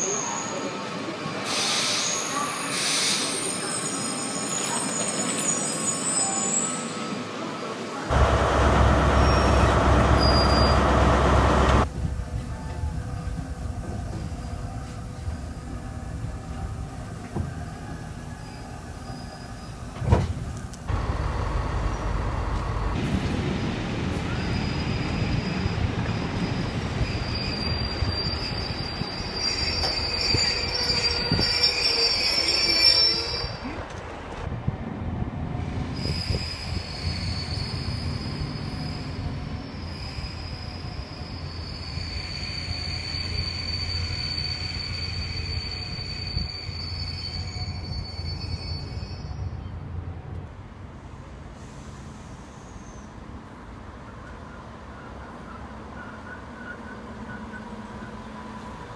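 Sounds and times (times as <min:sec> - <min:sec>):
train brake squeal: 0:00.0 - 0:07.2, 0:08.6 - 0:11.8, 0:17.5 - 0:20.0, 0:24.3 - 0:33.7, 0:35.9 - 0:49.7, 0:51.5 - 0:53.2
train running rumble: 0:08.1 - 0:15.0, 0:20.0 - 0:26.2.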